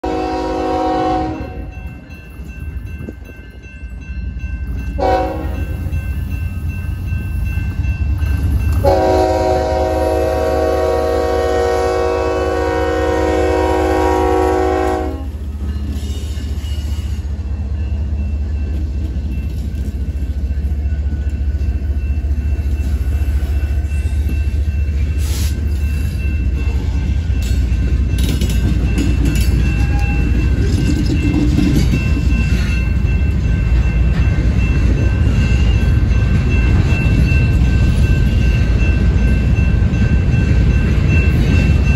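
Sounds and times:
locomotive air horn: 0:00.0 - 0:01.7, 0:05.0 - 0:05.7, 0:08.8 - 0:15.4.

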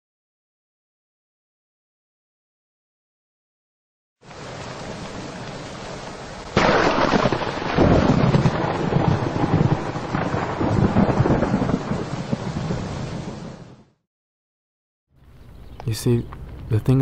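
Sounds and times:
steady rain: 0:04.2 - 0:14.0
thunder crack and rumble: 0:04.3 - 0:13.9.

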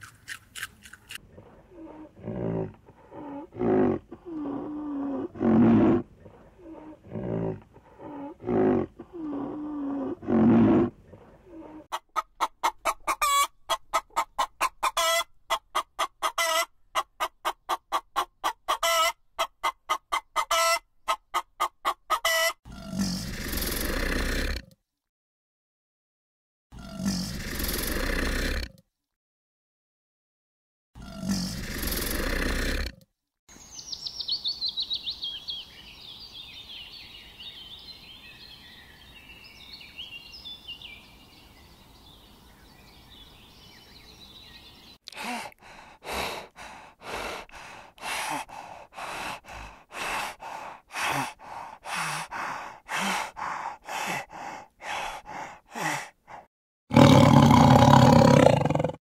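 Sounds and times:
bird chirps: 0:33.5 - 0:45.0.

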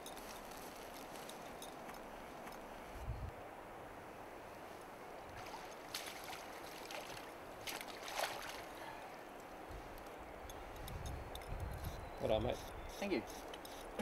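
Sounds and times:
river water rushing: 0:03.5 - 0:09.6
fish splashing: 0:05.4 - 0:08.7.

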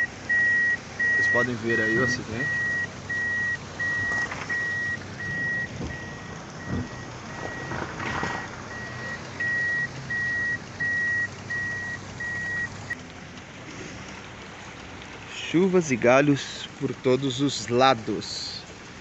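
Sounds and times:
electronic warning beeps: 0:00.0 - 0:07.7, 0:08.7 - 0:12.7
steady rain: 0:00.0 - 0:19.0.

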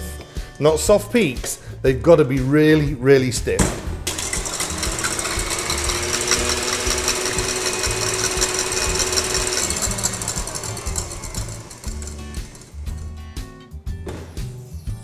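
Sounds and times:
stand mixer motor whine: 0:04.1 - 0:13.3
whisk beating egg whites: 0:04.1 - 0:13.3.

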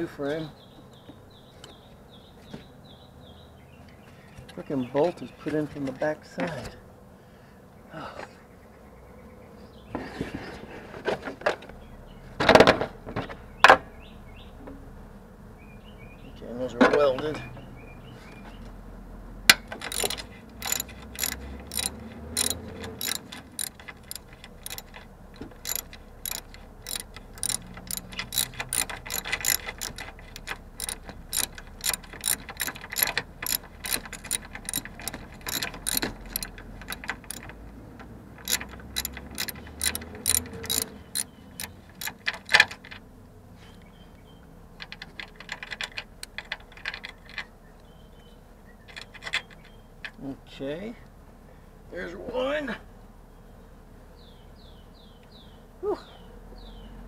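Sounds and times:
socket ratchet clicking: 0:19.5 - 0:42.9, 0:44.8 - 0:47.3.

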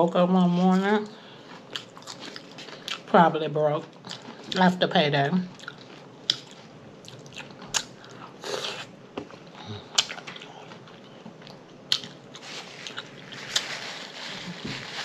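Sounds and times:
person chewing: 0:01.4 - 0:03.1, 0:05.5 - 0:13.7.

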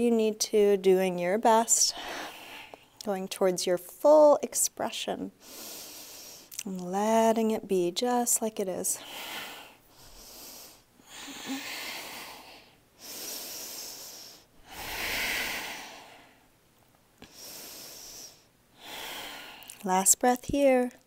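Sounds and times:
slow deep breathing: 0:09.0 - 0:16.5, 0:17.2 - 0:19.8.

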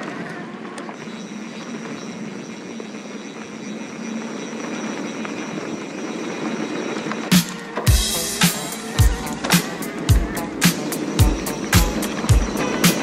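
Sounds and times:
faint high whine: 0:00.0 - 0:13.0
mountain bike tyre roar on dirt: 0:00.0 - 0:13.0.

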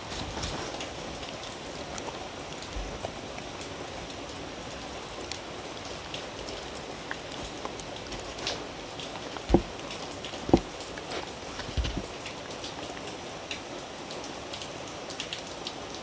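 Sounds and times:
dog licking and chewing: 0:05.1 - 0:12.2.

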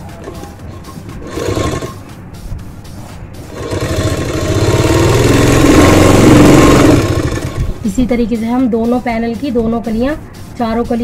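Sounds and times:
sewing machine stitching: 0:00.1 - 0:02.0, 0:03.5 - 0:07.8.

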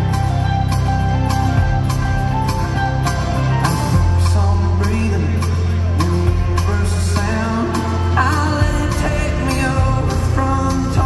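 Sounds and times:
guitars: 0:00.0 - 0:11.0
held bass notes: 0:00.0 - 0:11.0
live band through sound system: 0:00.0 - 0:11.0
steady drumbeat: 0:00.0 - 0:11.0.

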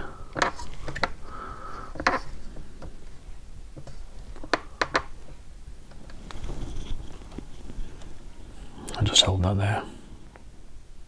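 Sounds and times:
fingers tapping wooden model: 0:00.4 - 0:01.2, 0:03.8 - 0:05.1.

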